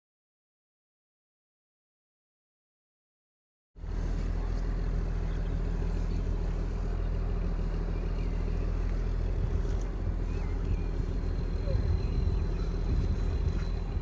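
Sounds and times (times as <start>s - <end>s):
engine droning: 3.8s - 14.0s.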